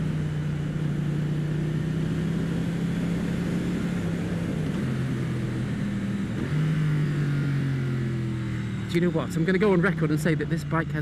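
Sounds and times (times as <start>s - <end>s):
motorcycle engine running: 0.0s - 11.0s
wind noise: 2.9s - 6.6s.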